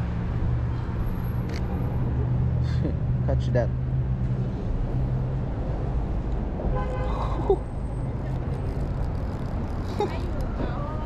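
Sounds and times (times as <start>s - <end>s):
vehicle engine humming: 0.0s - 11.0s
car horn toot: 6.7s - 7.1s.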